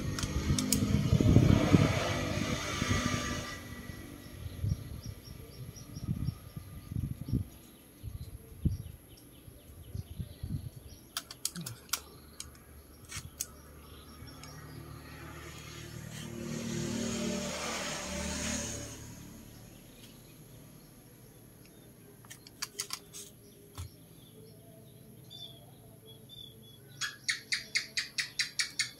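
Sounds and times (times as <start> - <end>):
sharp clicks: 0.0 - 0.9, 11.1 - 13.6, 21.6 - 23.2
vehicle noise: 0.0 - 8.0, 11.1 - 28.9
small birds chirping: 3.8 - 16.6, 19.4 - 28.9.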